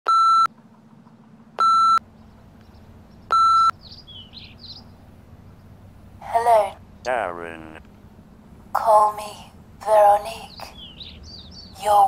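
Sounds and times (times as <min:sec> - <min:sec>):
faint low hum: 0:00.2 - 0:12.0
electronic beeps: 0:01.6 - 0:02.0, 0:03.3 - 0:03.8
bird chirps: 0:02.1 - 0:05.7, 0:10.3 - 0:12.0.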